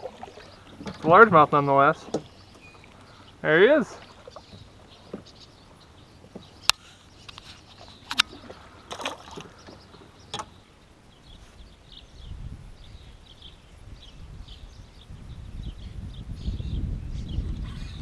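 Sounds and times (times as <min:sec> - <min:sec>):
water lapping and dripping: 0:00.0 - 0:10.6
wind rumbling on microphone: 0:04.0 - 0:18.0.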